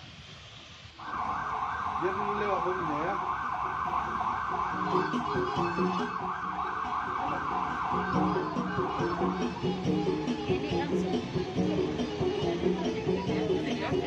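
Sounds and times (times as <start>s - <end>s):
siren yelping: 1.0s - 10.2s.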